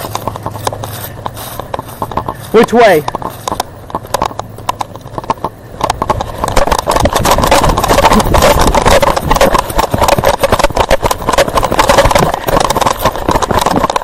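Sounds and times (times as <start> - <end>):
camera rubbing against clothing: 0.0 - 4.4, 5.9 - 14.0.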